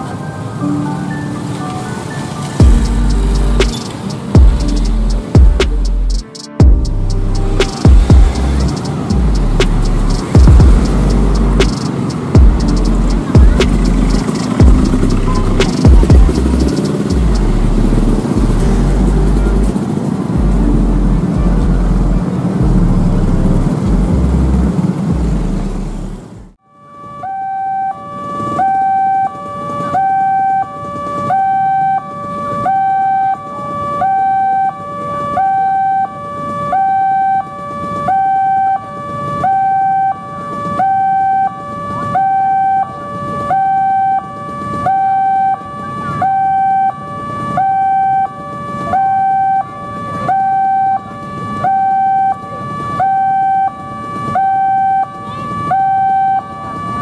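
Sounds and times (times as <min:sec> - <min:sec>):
loud traffic noise: 0:00.0 - 0:57.0
level crossing two-tone alarm: 0:06.6 - 0:18.4, 0:26.8 - 0:57.0.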